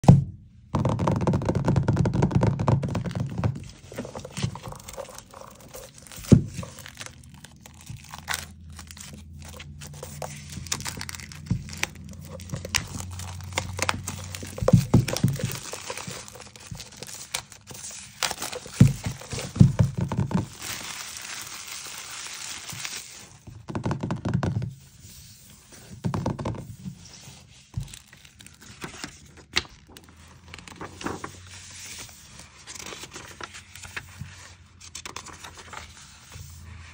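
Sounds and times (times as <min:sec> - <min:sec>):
fingernails tapping on plastic film: 0:00.7 - 0:24.8
book pages turning: 0:02.8 - 0:24.0, 0:24.6 - 0:36.9
plastic film crinkling and tearing: 0:02.9 - 0:23.5, 0:27.2 - 0:36.3.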